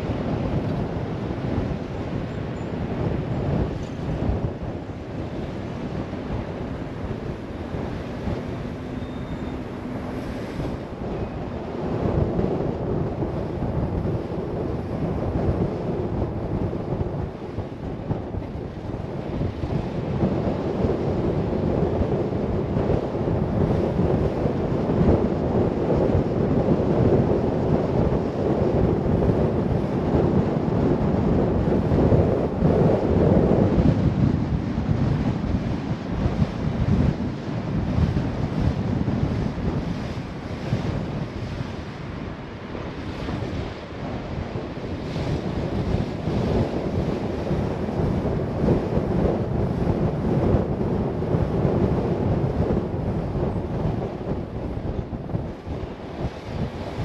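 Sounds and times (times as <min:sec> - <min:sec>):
car road noise: 0:00.0 - 0:16.5
wind buffeting microphone: 0:00.0 - 0:57.0.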